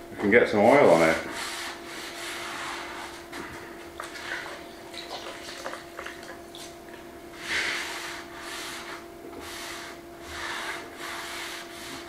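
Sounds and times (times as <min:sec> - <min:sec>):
faint steady hum: 0:00.0 - 0:12.0
damp cloth wiping wood: 0:07.3 - 0:12.0.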